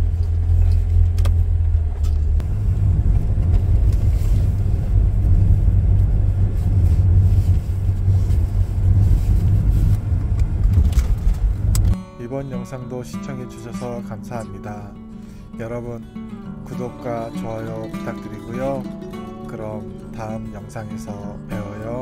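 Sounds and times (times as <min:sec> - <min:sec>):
car interior engine rumble: 0:00.0 - 0:12.0
tyre road noise: 0:00.0 - 0:12.0.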